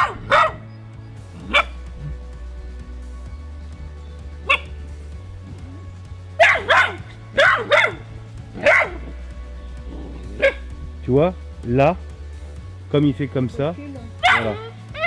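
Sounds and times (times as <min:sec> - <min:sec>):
puppy barking: 0:00.0 - 0:00.7, 0:01.4 - 0:02.2, 0:04.4 - 0:04.8, 0:06.4 - 0:09.2, 0:10.1 - 0:10.7, 0:14.2 - 0:15.0
low background music: 0:00.0 - 0:15.0.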